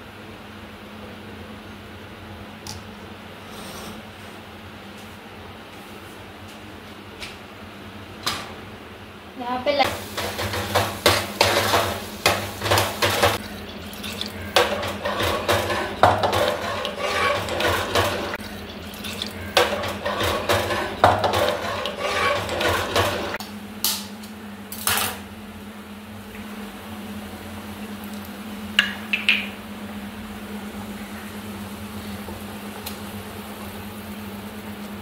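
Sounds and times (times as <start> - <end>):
wet sloshing: 13.4 - 14.6, 18.3 - 19.6
spoon scraping metal jar: 16.3 - 18.0, 20.1 - 23.0.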